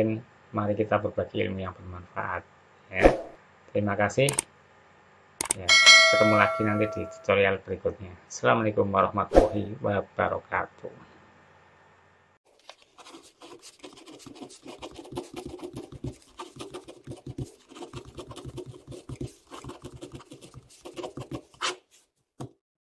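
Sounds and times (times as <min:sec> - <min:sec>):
pen scratching on paper: 0:13.0 - 0:22.5.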